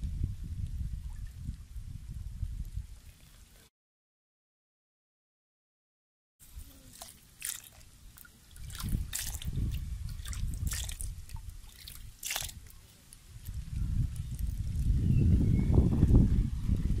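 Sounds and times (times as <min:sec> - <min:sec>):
fish slapping in bucket: 0:06.9 - 0:09.6, 0:10.2 - 0:12.7.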